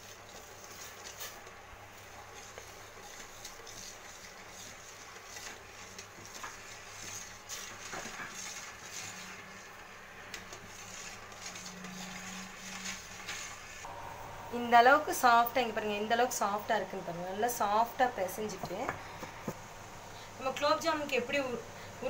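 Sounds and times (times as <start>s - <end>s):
metal spoon scraping a pot: 10.5s - 13.6s.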